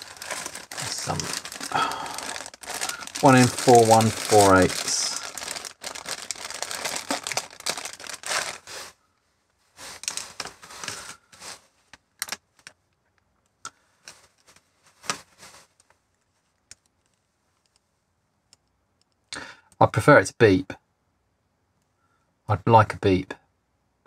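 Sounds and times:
plastic bag crinkling: 0:00.0 - 0:09.0, 0:09.8 - 0:12.7.

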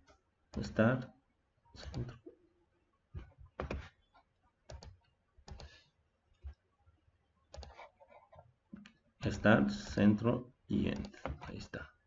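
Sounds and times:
mouse and keyboard clicks: 0:04.7 - 0:05.8, 0:07.5 - 0:07.9.

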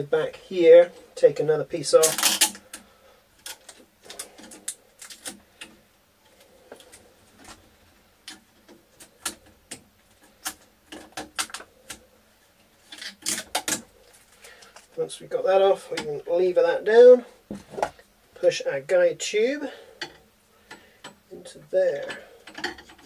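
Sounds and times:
plastic parts clicking: 0:02.0 - 0:05.8, 0:08.2 - 0:12.0, 0:12.9 - 0:14.9.

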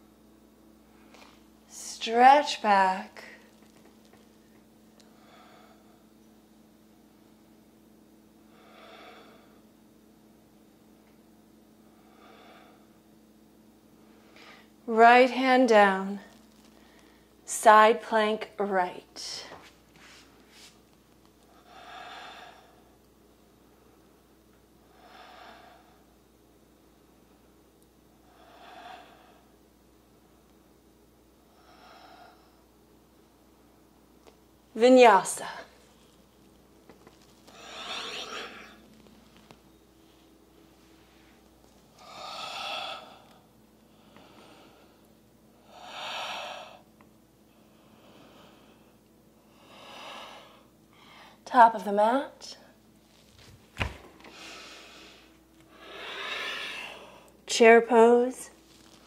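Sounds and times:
woman breathing slowly: 0:05.0 - 0:06.2, 0:08.5 - 0:09.8, 0:11.8 - 0:13.1, 0:16.6 - 0:17.4, 0:21.4 - 0:23.0, 0:24.8 - 0:26.2, 0:28.2 - 0:29.6, 0:31.4 - 0:32.8, 0:36.9 - 0:51.4, 0:53.9 - 0:57.4.

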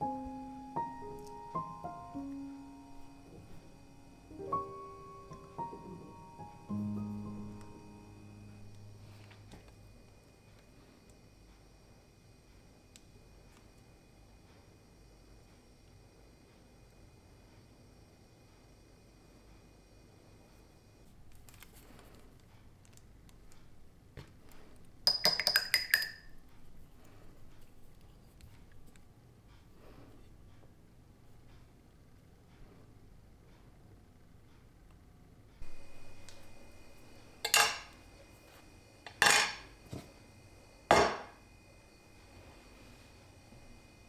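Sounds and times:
faint handling sounds: 0:08.7 - 0:11.7, 0:21.0 - 0:25.0, 0:26.4 - 0:33.8
glass clinks with high ring: 0:25.1 - 0:26.3.

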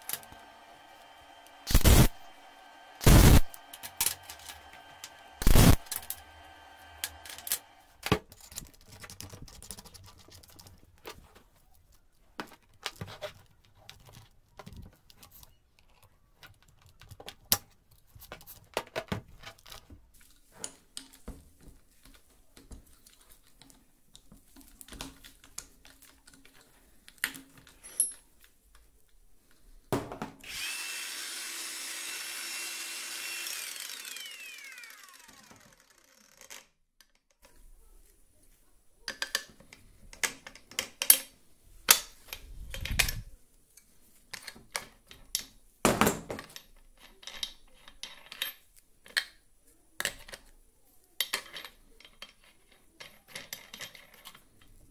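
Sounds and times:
power tool running: 0:00.0 - 0:08.0, 0:30.4 - 0:36.6
metal clicks and clinks: 0:25.5 - 0:28.2, 0:46.4 - 0:49.2.

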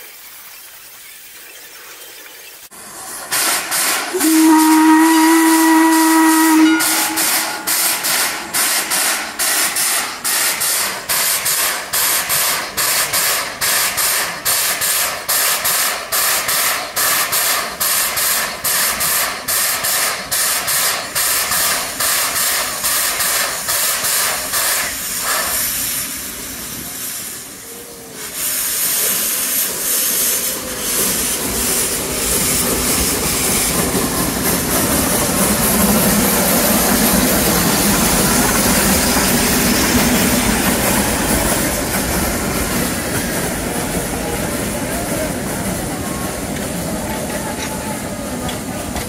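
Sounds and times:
steam locomotive hissing: 0:02.7 - 0:49.0
steam whistle blowing: 0:03.4 - 0:09.6.

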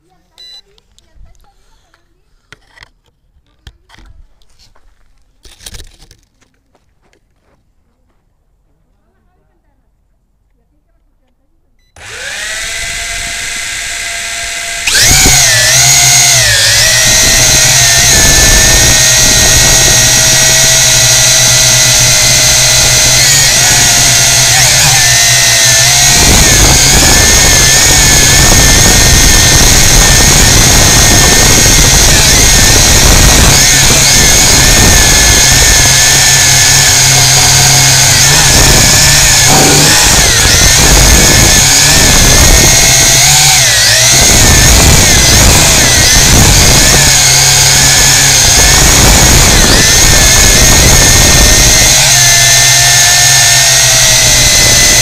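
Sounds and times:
drone motors buzzing: 0:12.0 - 0:55.0.

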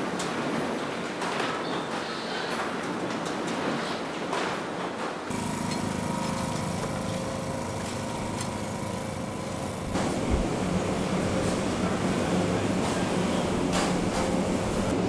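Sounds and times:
loud low machine noise: 0:05.3 - 0:15.0
small engine running: 0:05.3 - 0:15.0.

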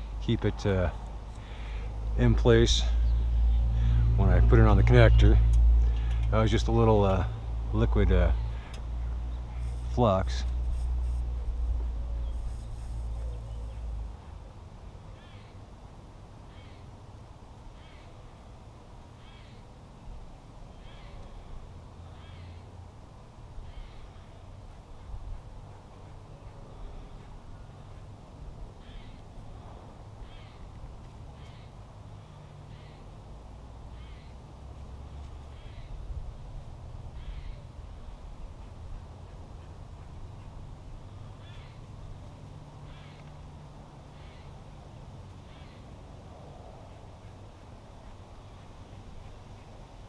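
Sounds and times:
bird calling: 0:15.1 - 0:15.6, 0:19.2 - 0:19.7, 0:20.7 - 0:21.5, 0:22.1 - 0:22.7, 0:23.6 - 0:28.1, 0:28.8 - 0:29.3, 0:30.2 - 0:33.2, 0:33.9 - 0:34.4, 0:35.2 - 0:36.0, 0:37.1 - 0:37.7, 0:41.2 - 0:41.9, 0:42.8 - 0:43.3, 0:44.1 - 0:44.6, 0:45.4 - 0:45.9.

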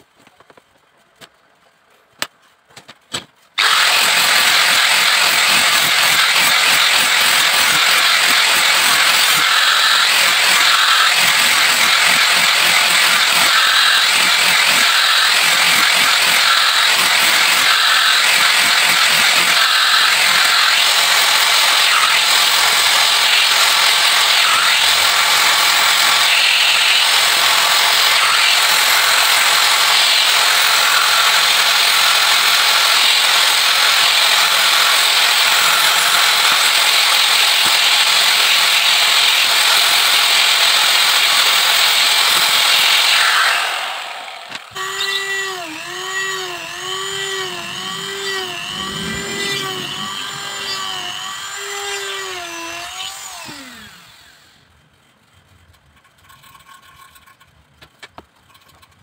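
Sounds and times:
angle grinder sanding: 0:03.6 - 0:54.4
motor whine: 0:43.0 - 0:54.7.

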